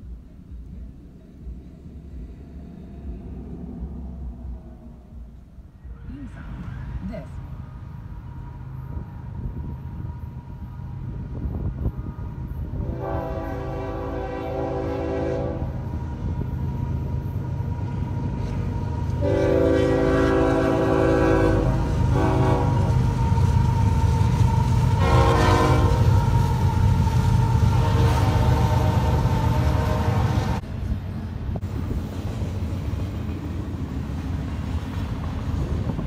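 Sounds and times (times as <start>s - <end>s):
deep diesel engine rumble: 0.0s - 11.3s
locomotive air horn blasts: 12.8s - 15.8s, 19.2s - 23.0s, 25.0s - 26.1s, 27.7s - 30.6s.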